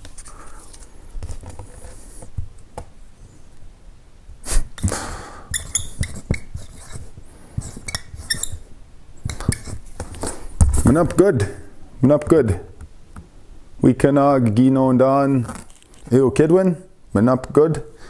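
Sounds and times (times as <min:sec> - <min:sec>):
marker squeaking on whiteboard: 0:05.5 - 0:11.2.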